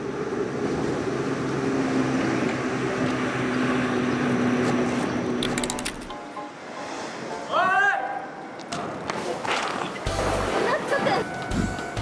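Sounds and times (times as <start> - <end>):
rattle of clicks: 5.4 - 6.2.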